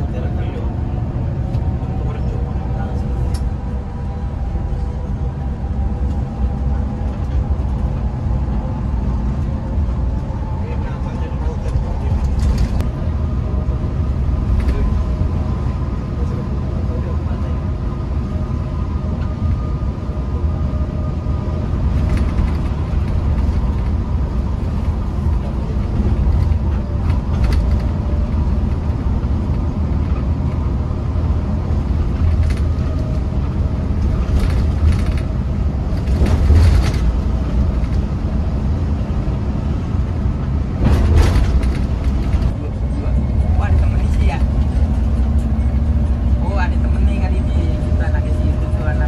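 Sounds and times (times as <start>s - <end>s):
bus engine and tyres rumbling: 0.0s - 49.0s.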